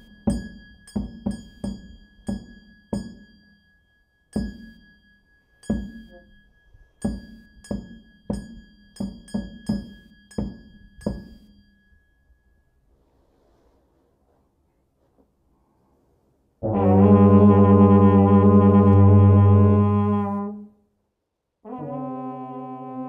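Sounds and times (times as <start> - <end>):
percussion strokes ringing: 0.0 - 13.2
faint high metallic ring: 0.0 - 14.1.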